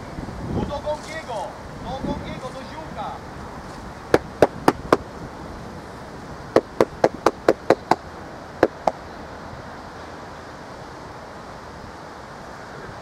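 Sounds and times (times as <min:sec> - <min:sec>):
sharp knocks: 0:04.1 - 0:05.1, 0:06.6 - 0:08.0, 0:08.6 - 0:09.0.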